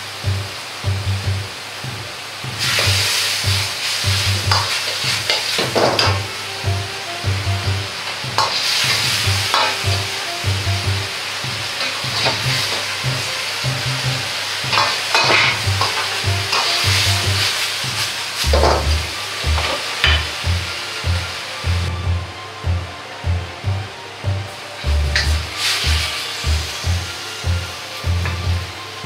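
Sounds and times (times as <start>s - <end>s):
sauce sizzling in a wok: 0.0s - 22.0s, 24.5s - 28.8s
ladle scraping a wok: 7.9s - 10.4s, 14.4s - 18.9s.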